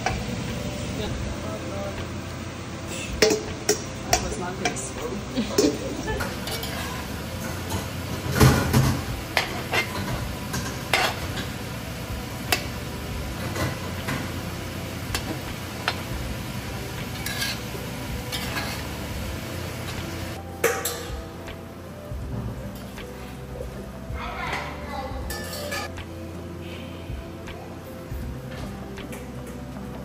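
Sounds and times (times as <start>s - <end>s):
food sizzling: 0.0s - 26.6s
metal utensil clinking on bowl: 3.2s - 11.6s, 25.3s - 25.9s.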